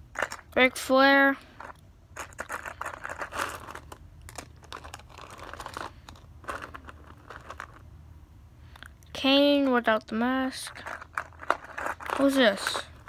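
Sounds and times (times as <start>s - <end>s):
plastic toy figures clattering: 0.1s - 0.9s, 1.6s - 7.8s, 10.5s - 13.0s.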